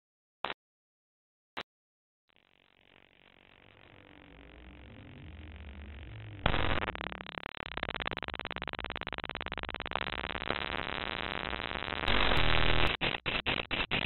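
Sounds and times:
harsh pulsing digital buzz: 0:02.5 - 0:14.0
harsh noise burst with stuttering chops: 0:03.3 - 0:14.0.

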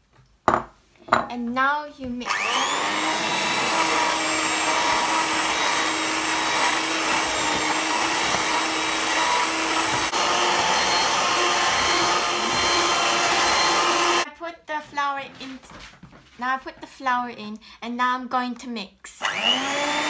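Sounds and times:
electric hand mixer whisking: 0:02.2 - 0:14.3, 0:19.2 - 0:20.0.

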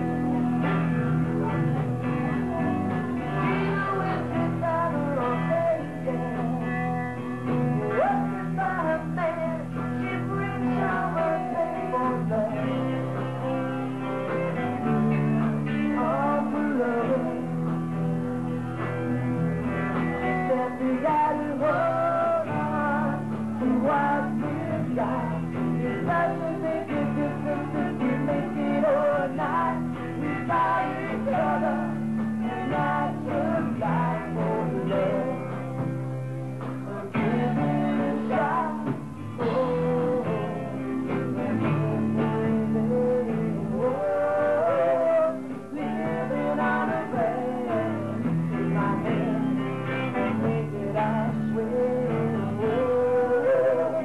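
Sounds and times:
acoustic guitar: 0:00.0 - 0:54.0
electric guitar: 0:00.0 - 0:54.0
man singing: 0:00.0 - 0:54.0.

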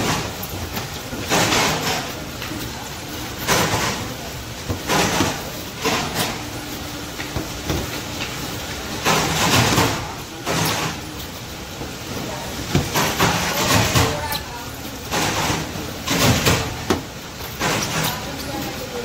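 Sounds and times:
loud machine clatter: 0:00.0 - 0:19.0.

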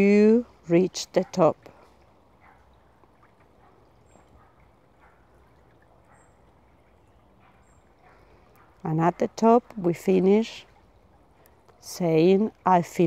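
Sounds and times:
stream trickling over stones: 0:00.0 - 0:13.0.

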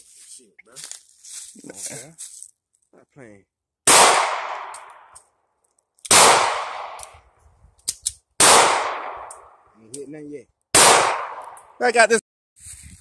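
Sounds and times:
pistol shots echoing: 0:03.9 - 0:05.1, 0:06.1 - 0:07.1, 0:08.4 - 0:09.6, 0:10.8 - 0:11.6.

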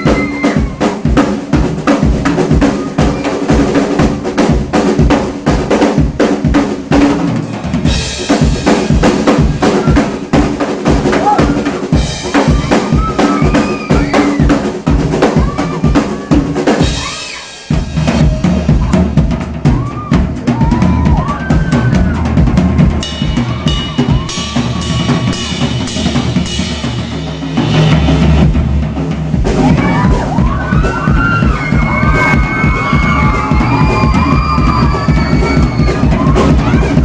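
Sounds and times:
audience screaming: 0:00.0 - 0:01.1, 0:02.6 - 0:04.2, 0:09.2 - 0:26.2, 0:29.5 - 0:37.0
drum kit solo: 0:00.0 - 0:37.0.

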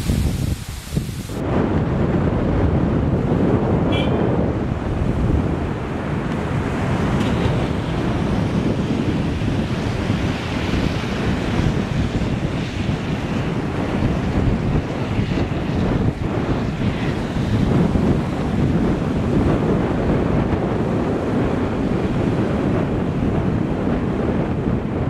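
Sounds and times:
road noise: 0:00.0 - 0:25.0
wind buffeting microphone: 0:00.0 - 0:25.0.

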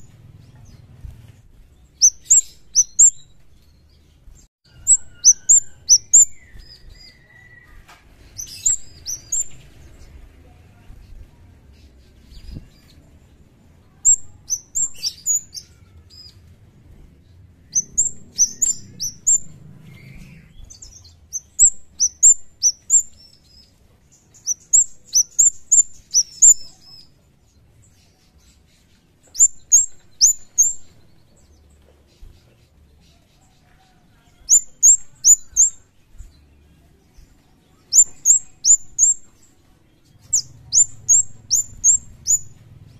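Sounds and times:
bird chirping high: 0:01.8 - 0:03.7, 0:04.7 - 0:10.1, 0:13.9 - 0:16.4, 0:17.6 - 0:23.7, 0:24.3 - 0:27.1, 0:29.2 - 0:31.6, 0:34.4 - 0:35.9, 0:37.7 - 0:39.5, 0:40.1 - 0:42.6.

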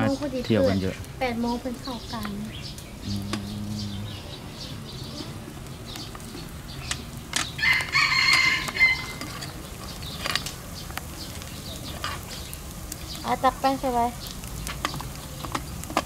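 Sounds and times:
rooster crowing: 0:07.6 - 0:09.2.

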